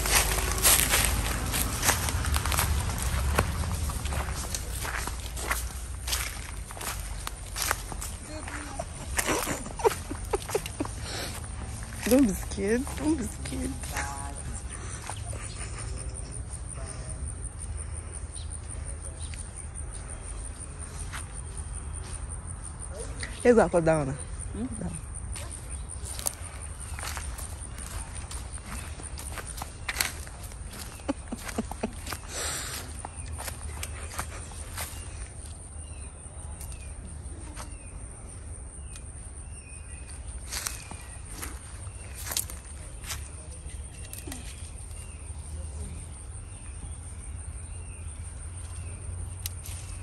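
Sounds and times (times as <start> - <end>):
rustles: 0.0 - 16.8
steady low rumble: 0.0 - 20.8
faint bird chirps: 24.2 - 50.0.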